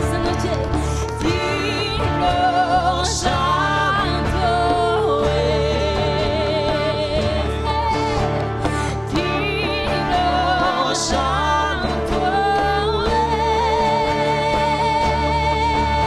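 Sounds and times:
electric guitars and band: 0.0s - 16.0s
person singing with vibrato: 0.0s - 16.0s.

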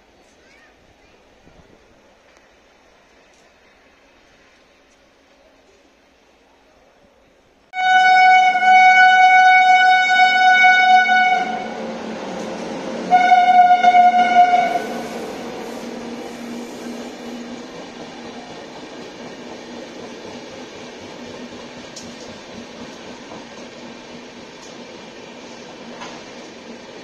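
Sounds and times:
train rumbling past: 0.0s - 27.0s
locomotive horn blasts: 7.8s - 11.8s, 13.0s - 16.5s.

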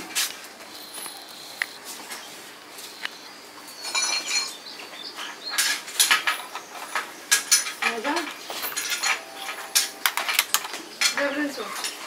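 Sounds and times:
hard objects clinking: 5.4s - 12.0s.

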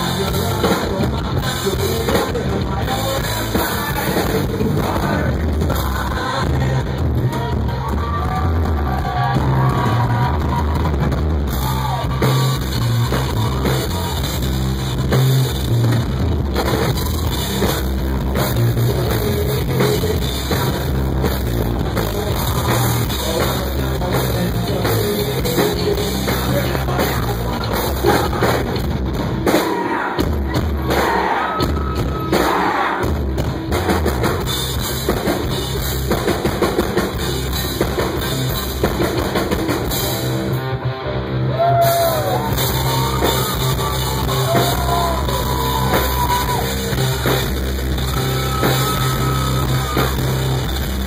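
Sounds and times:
drum kit: 0.0s - 40.8s, 41.5s - 51.0s
bass guitar: 0.0s - 51.0s
electric guitar: 33.4s - 51.0s.

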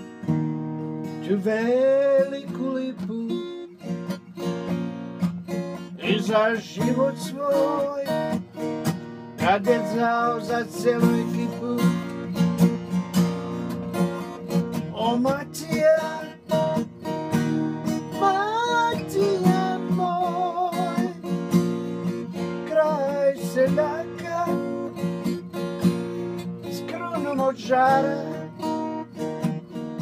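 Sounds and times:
acoustic guitar strumming: 0.0s - 30.0s
man singing slow song: 1.2s - 3.8s, 5.9s - 8.4s, 9.4s - 12.4s, 14.8s - 16.9s, 18.1s - 21.3s, 22.4s - 25.0s, 26.6s - 28.8s.

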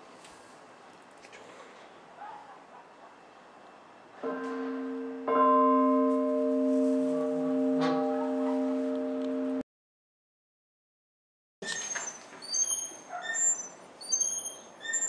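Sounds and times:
church bell ringing: 4.2s - 9.6s.

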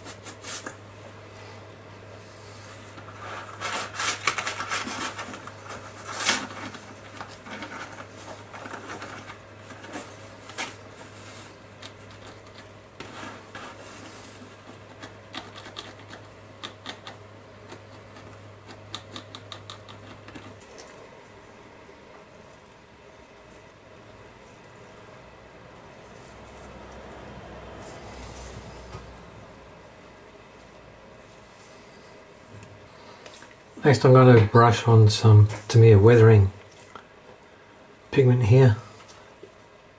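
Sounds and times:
low steady hum: 0.0s - 39.9s
paintbrush scratching plastic: 11.0s - 20.8s.

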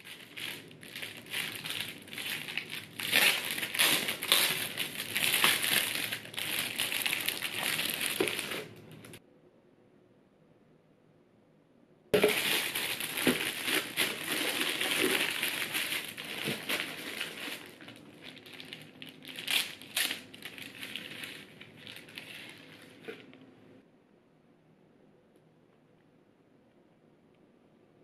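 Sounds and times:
plastic wrapping crinkling: 0.0s - 9.2s, 12.2s - 23.4s.

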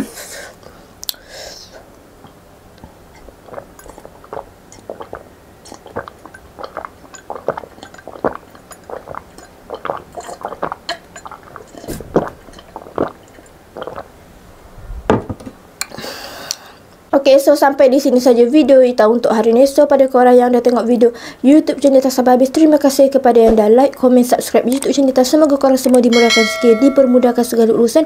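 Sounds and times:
person gulping a drink: 2.8s - 14.2s.

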